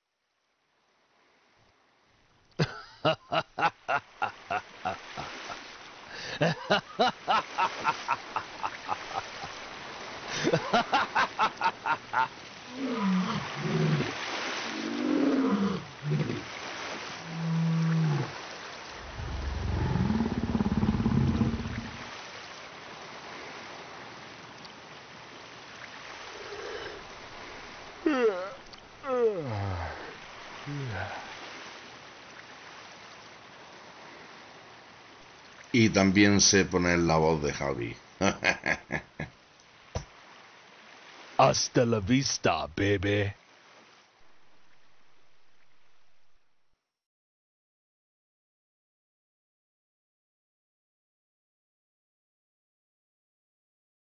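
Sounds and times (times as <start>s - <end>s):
low roar: 19.0s - 22.0s.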